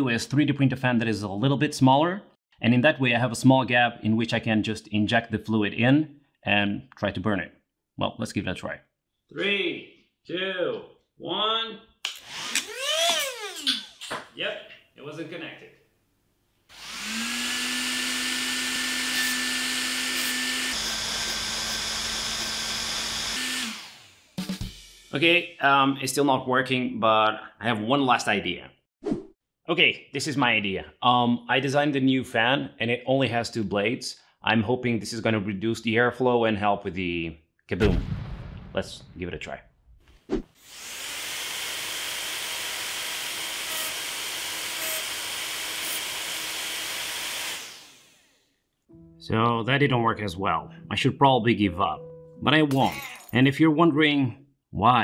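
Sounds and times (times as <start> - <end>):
hairdryer blowing with whine: 16.7 - 18.2.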